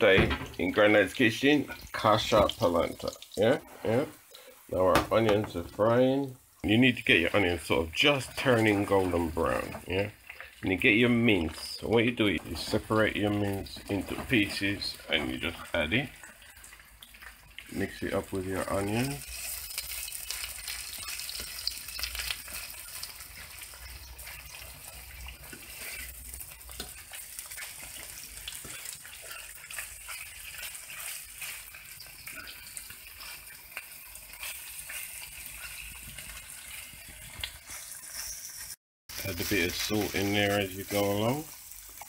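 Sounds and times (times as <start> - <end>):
meat and onions sizzling: 0.0 - 42.0
metal utensil scraping pan: 18.6 - 38.8.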